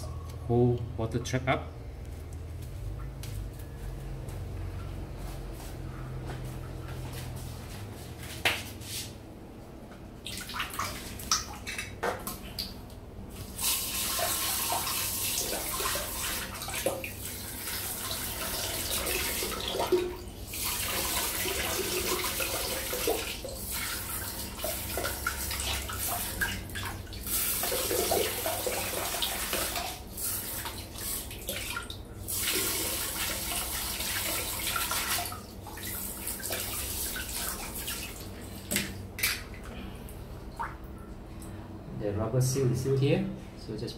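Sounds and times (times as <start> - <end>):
water splashing into toilet bowl: 10.2 - 12.8, 13.6 - 39.7.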